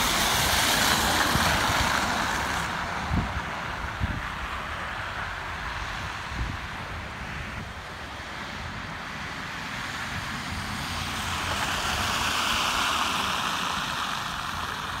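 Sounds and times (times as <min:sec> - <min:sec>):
car tyres hissing on wet road: 0:00.0 - 0:15.0.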